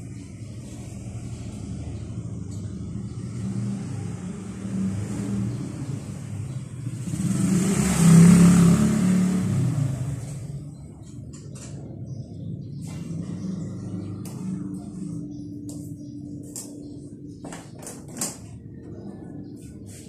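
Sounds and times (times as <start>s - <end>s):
motorcycle engine revving: 1.3s - 15.6s.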